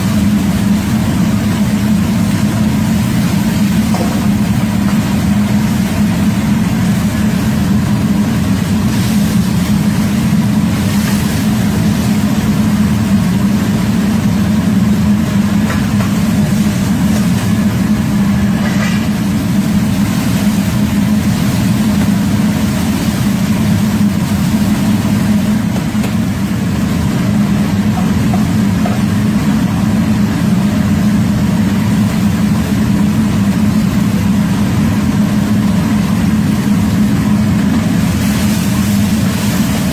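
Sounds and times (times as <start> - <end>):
gas burner and blower rumbling: 0.0 - 39.9.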